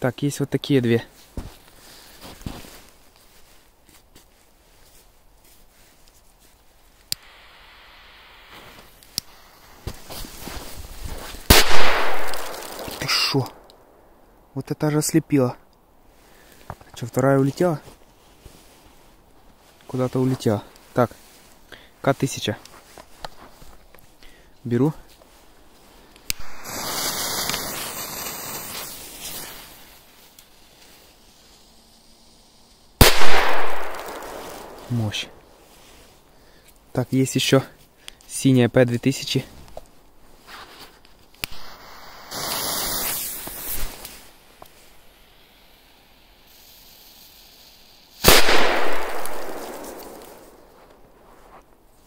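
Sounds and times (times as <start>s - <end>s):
firework fuse hissing and crackling: 1.1s - 14.0s, 16.1s - 37.0s, 39.2s - 51.8s.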